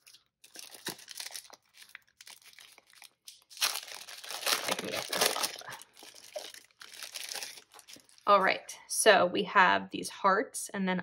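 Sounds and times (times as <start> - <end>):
plastic sleeve crinkling: 0.0 - 8.3.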